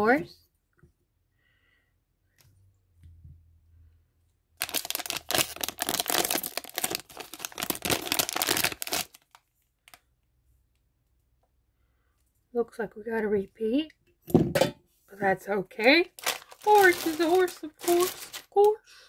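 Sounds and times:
plastic pouch crackling: 0:04.6 - 0:10.0, 0:16.0 - 0:18.8.

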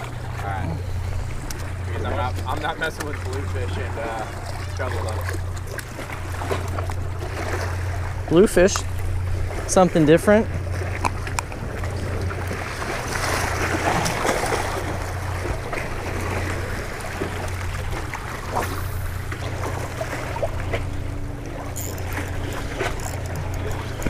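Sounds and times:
waves splashing against rocks: 0:01.4 - 0:24.0
fishing reel whirring: 0:21.1 - 0:24.0.

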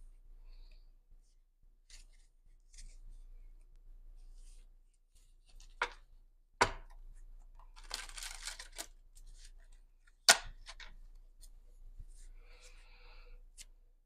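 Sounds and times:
cards rustling: 0:07.6 - 0:11.0.

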